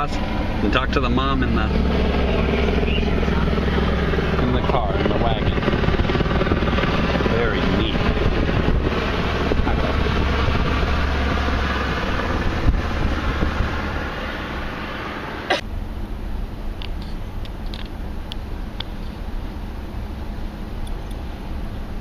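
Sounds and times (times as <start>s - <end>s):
car road and wind noise: 0.0s - 22.0s.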